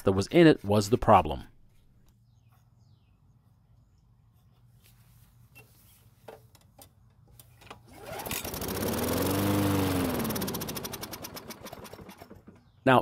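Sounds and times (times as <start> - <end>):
lawn mower engine starting: 7.4 - 13.0.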